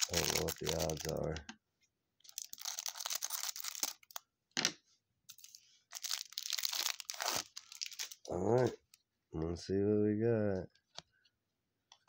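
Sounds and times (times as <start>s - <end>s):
plastic wrap crinkling: 0.0s - 1.4s, 2.3s - 4.2s, 5.3s - 9.0s.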